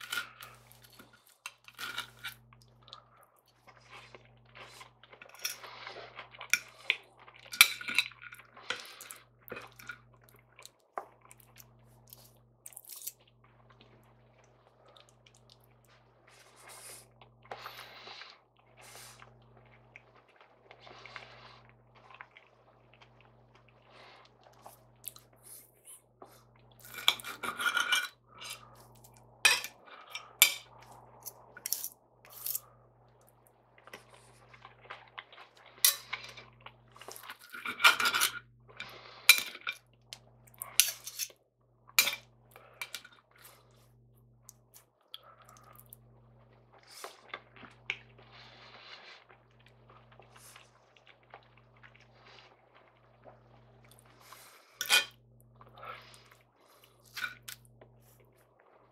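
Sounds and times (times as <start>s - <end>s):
knife and fork clinking on plate: 54.8s - 55.2s.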